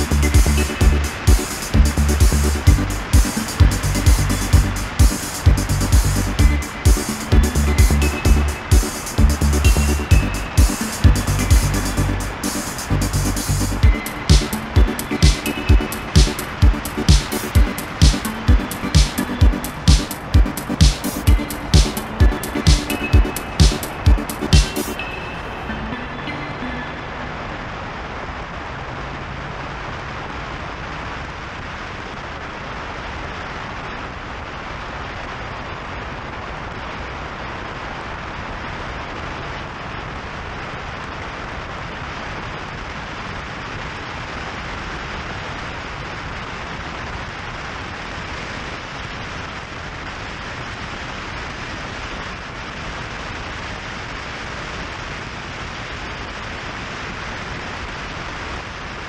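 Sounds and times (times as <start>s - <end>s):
wind and road noise: 27.0s - 59.0s.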